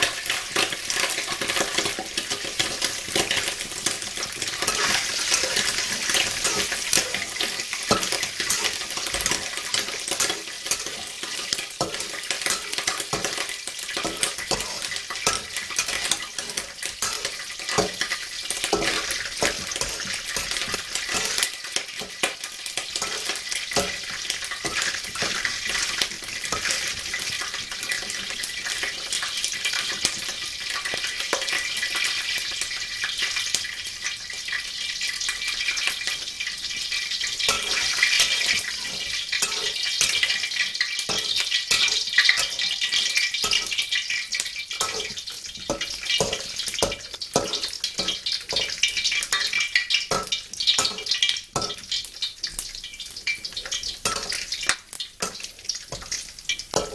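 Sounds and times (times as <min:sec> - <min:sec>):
spatula scraping a pan: 0:00.0 - 0:33.7, 0:35.2 - 0:56.9
peanuts sizzling in oil: 0:00.0 - 0:56.9.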